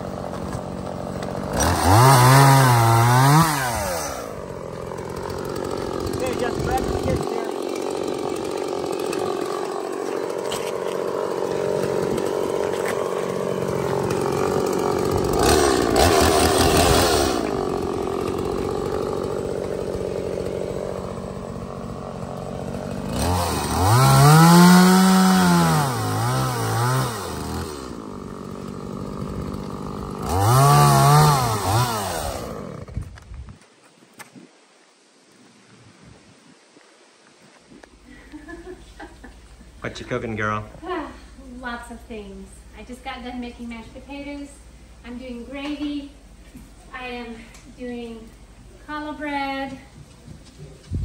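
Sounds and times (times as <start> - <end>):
chainsaw cutting log: 0.0 - 33.4.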